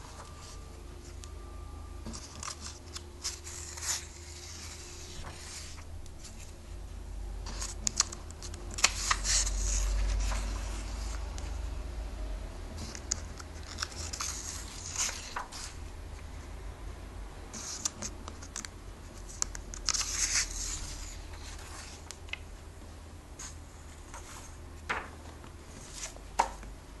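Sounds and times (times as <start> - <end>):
comic pages turning: 2.1 - 6.5, 7.5 - 11.5, 12.8 - 15.8, 17.6 - 22.4.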